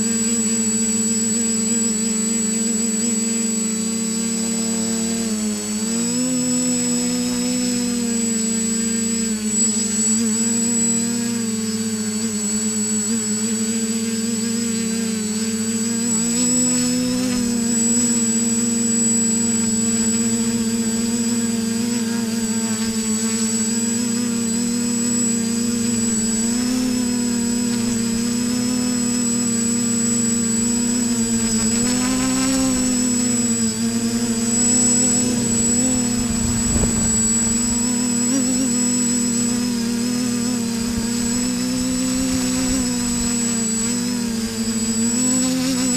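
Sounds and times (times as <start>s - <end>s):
drone motors buzzing hum: 0.0s - 45.9s
high-pitched whine: 22.9s - 45.9s.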